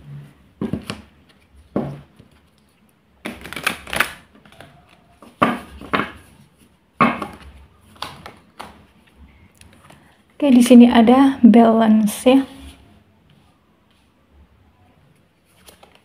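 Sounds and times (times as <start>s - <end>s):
cards rustling: 15.4s - 16.0s.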